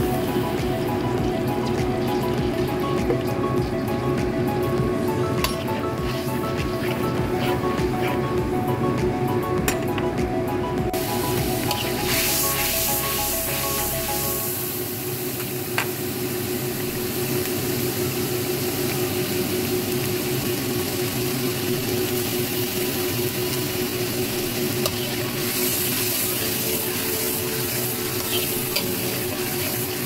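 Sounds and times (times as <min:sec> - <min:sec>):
paste sizzling in hot oil: 0:05.3 - 0:08.2, 0:11.0 - 0:15.4, 0:16.9 - 0:30.0
metal spatula stirring: 0:05.4 - 0:08.2.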